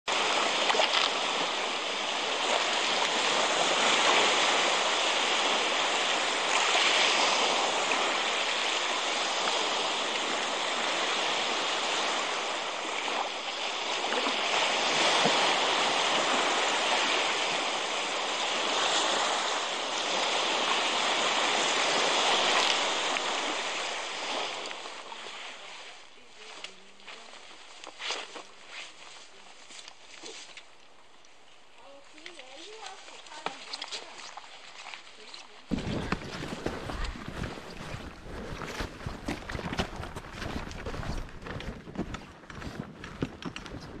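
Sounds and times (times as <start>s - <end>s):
surf breaking on sandy shore: 0.0s - 30.8s, 35.6s - 44.0s.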